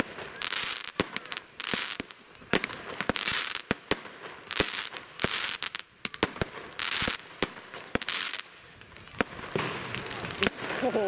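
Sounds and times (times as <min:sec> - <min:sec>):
fireworks banging: 0:00.0 - 0:11.0
fireworks hissing: 0:09.2 - 0:11.0.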